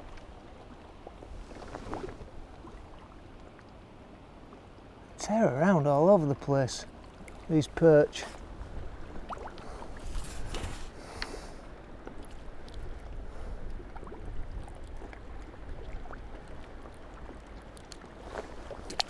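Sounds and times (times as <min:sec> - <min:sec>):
water lapping: 0:00.0 - 0:19.0
wind buffeting microphone: 0:08.3 - 0:11.0, 0:11.7 - 0:16.9
faint clicks of fish handling: 0:09.1 - 0:19.0.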